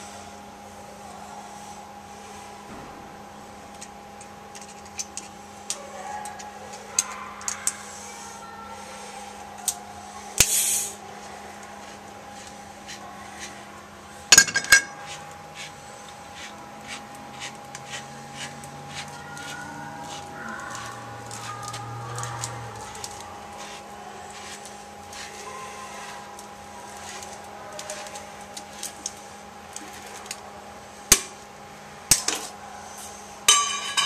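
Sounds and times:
steady hum: 0.0 - 34.0
hand tools clinking on metal: 14.3 - 15.2, 33.5 - 34.0.

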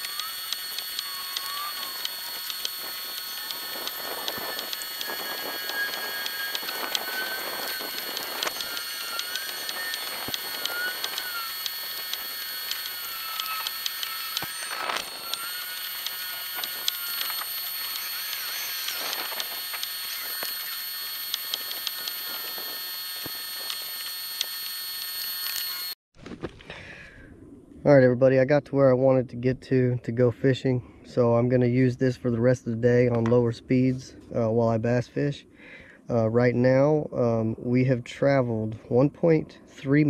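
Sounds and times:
electric motor whine: 0.0 - 26.0.

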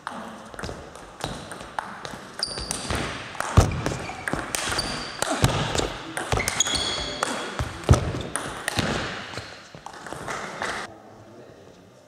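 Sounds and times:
table tennis ball bouncing: 0.0 - 10.9
short high squeaks: 6.4 - 7.2.

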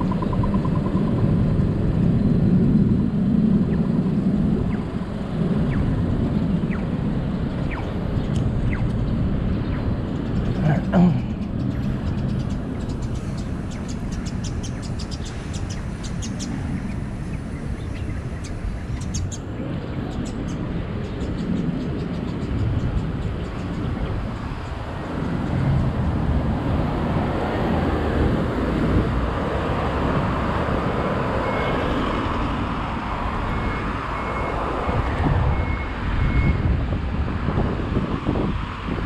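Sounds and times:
cars and truck passing: 0.0 - 39.0.

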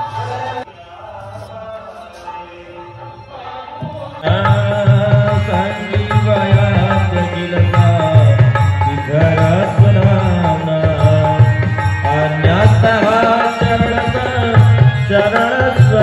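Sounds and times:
music with steady drum beat: 4.3 - 16.0.

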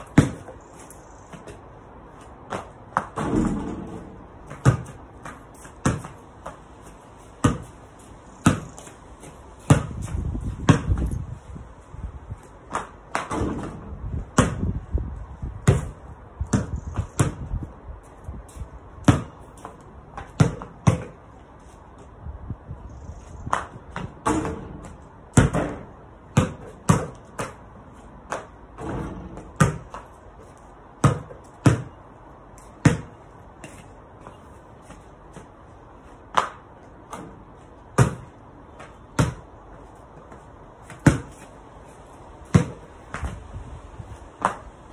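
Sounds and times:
basketball bouncing on paving: 0.0 - 11.3, 12.4 - 17.8, 18.5 - 22.1, 23.2 - 35.6, 36.2 - 41.5, 42.4 - 43.4, 44.1 - 44.8
basketball hitting hoop: 0.1 - 0.5, 2.5 - 6.2, 9.7 - 10.0, 13.1 - 14.7, 20.3 - 21.2, 24.0 - 27.6, 28.8 - 30.0, 31.0 - 31.9, 32.8 - 33.1, 38.0 - 38.3, 41.0 - 41.3, 42.5 - 43.4.

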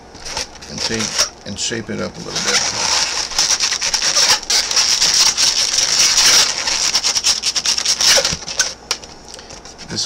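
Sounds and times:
balloons squeaking and rubbing: 0.2 - 1.4, 2.0 - 8.8.

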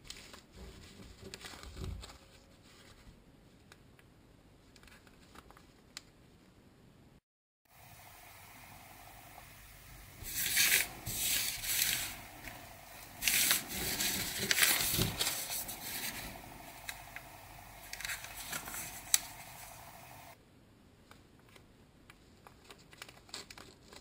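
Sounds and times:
steady hiss: 7.7 - 20.4
foil packets crinkling: 10.2 - 20.4.

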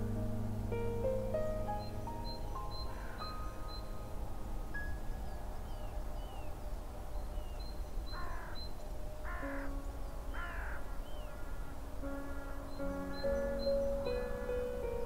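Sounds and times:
small birds chirping: 0.8 - 15.0
bird calling: 1.8 - 4.0, 7.4 - 15.0.

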